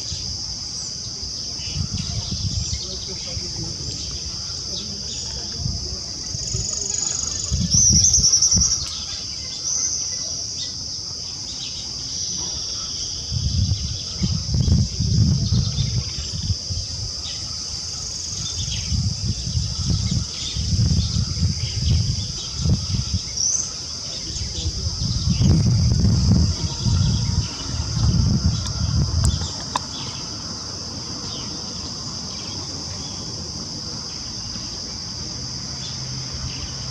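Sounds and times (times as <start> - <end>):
high-pitched insect drone: 0.0 - 36.9
low rumbling: 24.2 - 31.1.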